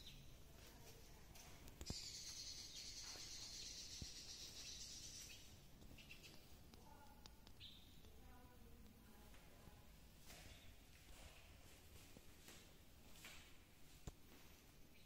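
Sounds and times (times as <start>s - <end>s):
faint bird chirps: 1.8s - 8.0s.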